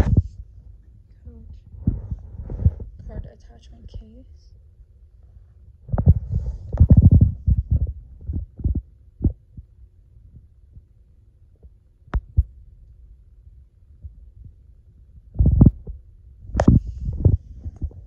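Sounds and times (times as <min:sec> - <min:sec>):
handling thumps and bumps: 0:00.0 - 0:00.4, 0:05.9 - 0:09.4, 0:15.3 - 0:18.0.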